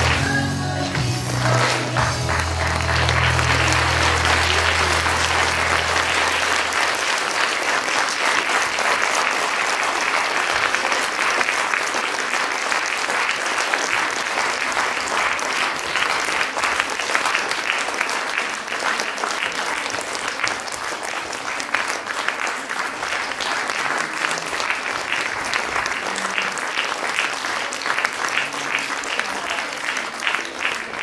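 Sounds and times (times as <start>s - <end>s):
audience applauding: 0.0s - 31.0s
low musical note: 2.0s - 7.0s.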